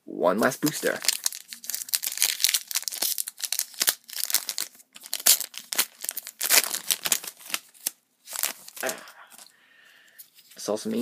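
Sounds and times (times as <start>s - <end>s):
foil pack tearing: 0.8s - 9.0s.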